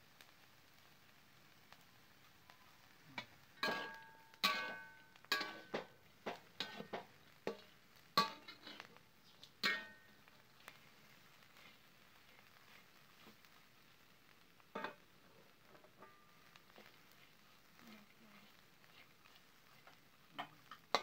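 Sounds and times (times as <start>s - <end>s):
metal spatula clanking on pan: 3.2s - 8.9s, 9.6s - 10.2s, 14.7s - 15.0s, 20.4s - 21.0s.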